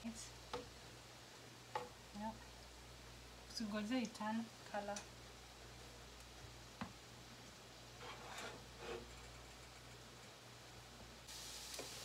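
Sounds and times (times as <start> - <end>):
onions sizzling in a frying pan: 0.0 - 8.0, 11.2 - 12.0
soft scrapes in a pan: 8.0 - 9.2.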